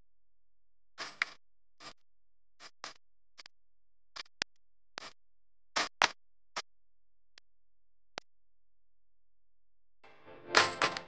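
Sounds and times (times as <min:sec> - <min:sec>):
clicks and scratchy ticks: 0:01.0 - 0:02.0, 0:02.6 - 0:03.5, 0:04.2 - 0:05.2, 0:05.8 - 0:06.7.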